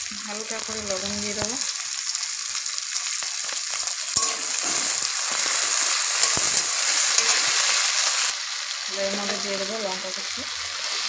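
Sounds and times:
vegetables sizzling in hot oil: 0:00.0 - 0:11.0
metal spatula scraping pan: 0:04.2 - 0:08.3.

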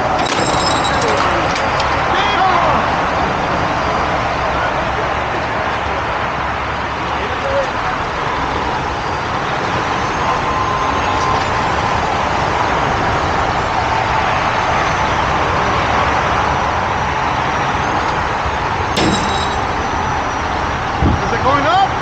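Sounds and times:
diesel truck engine running: 0:00.0 - 0:22.0.

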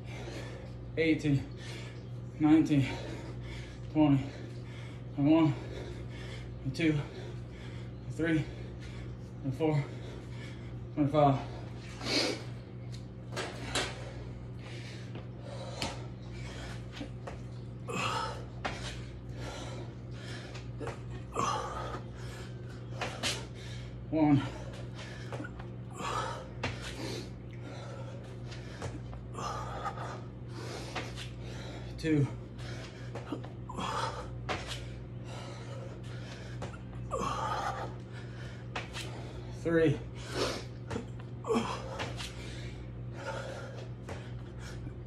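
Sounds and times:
man breathing hard: 0:00.0 - 0:12.7, 0:13.3 - 0:45.0
steady low hum: 0:00.0 - 0:45.0
forceful gasping breaths: 0:17.9 - 0:40.8, 0:41.5 - 0:45.0.

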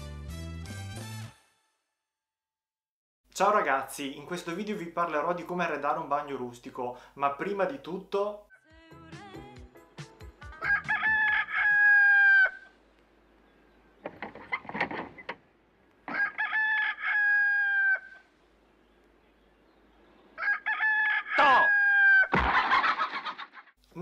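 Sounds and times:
rooster crowing: 0:10.5 - 0:12.8, 0:16.1 - 0:18.3, 0:20.4 - 0:23.3.

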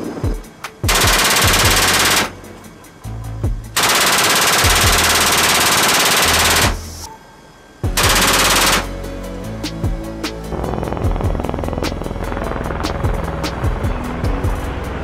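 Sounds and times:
machine gun automatic bursts: 0:00.9 - 0:02.3, 0:03.8 - 0:06.8, 0:08.0 - 0:08.9.

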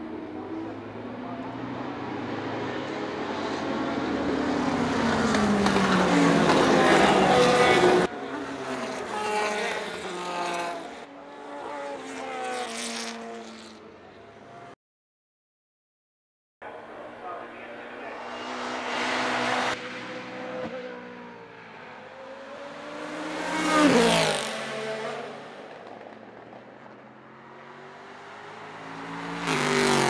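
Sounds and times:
racing car engines: 0:00.0 - 0:14.8, 0:16.6 - 0:30.0
car accelerating through gears: 0:27.7 - 0:30.0.

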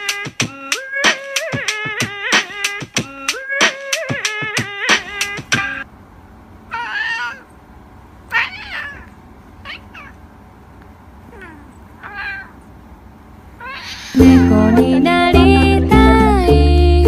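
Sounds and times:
cat meowing: 0:06.7 - 0:07.5, 0:08.3 - 0:10.2, 0:11.3 - 0:12.6, 0:13.6 - 0:14.2.

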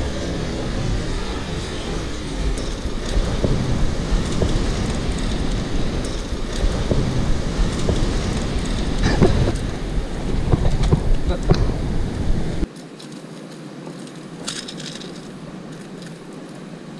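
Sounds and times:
wind buffeting microphone: 0:00.0 - 0:12.7.

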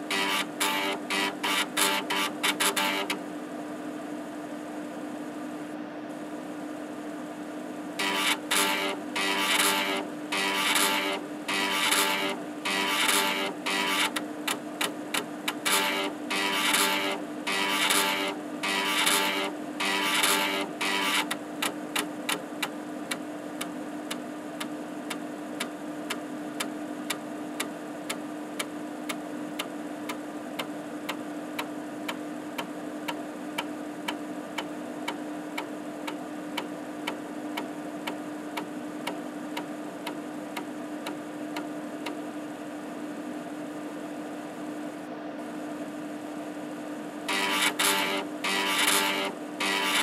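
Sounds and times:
spinning disk hum: 0:00.0 - 0:50.0.

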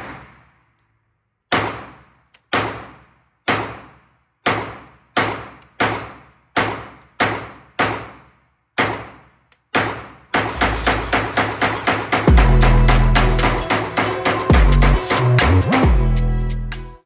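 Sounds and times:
pistol shots with echo: 0:00.0 - 0:00.9, 0:01.5 - 0:12.2.

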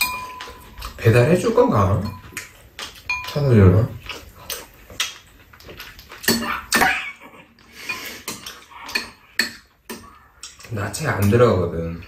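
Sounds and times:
spoons clinking on ceramic bowls: 0:00.0 - 0:01.1, 0:02.0 - 0:03.6, 0:07.8 - 0:11.4.

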